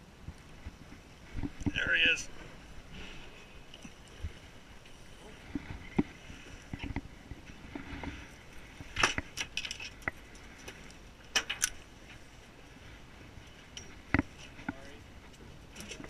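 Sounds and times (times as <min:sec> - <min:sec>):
fishing tackle clinking on metal rail: 0:09.0 - 0:11.8.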